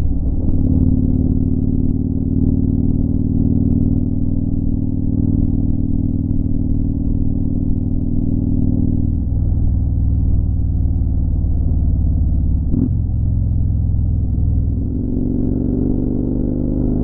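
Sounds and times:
muffled motorcycle engine drone: 0.0s - 17.0s.

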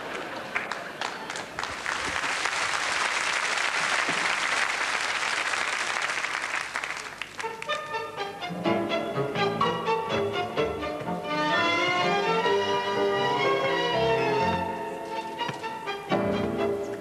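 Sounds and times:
audience applauding: 0.0s - 7.8s
music: 7.4s - 17.0s.

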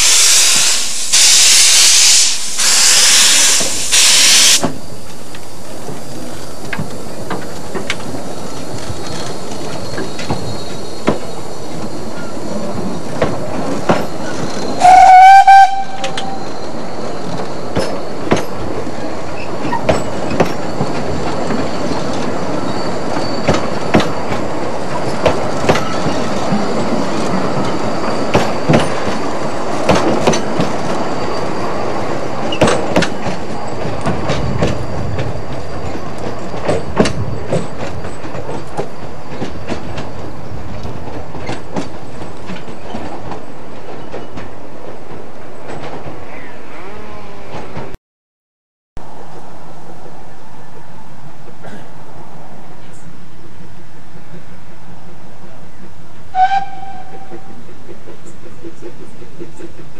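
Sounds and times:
steam locomotive whistle: 0.0s - 4.7s, 14.8s - 16.6s, 56.3s - 57.6s
train coaches rumbling: 0.0s - 48.0s, 49.0s - 59.9s
wheels clicking over rail joints: 4.6s - 16.4s, 17.0s - 46.5s.

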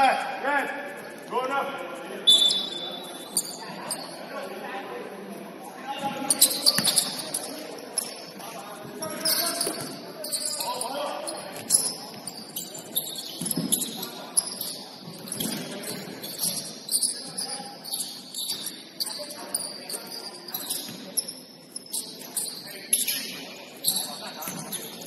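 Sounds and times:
scattered voices: 0.0s - 25.0s
sneakers squeaking on court: 2.3s - 4.3s, 6.0s - 25.0s.

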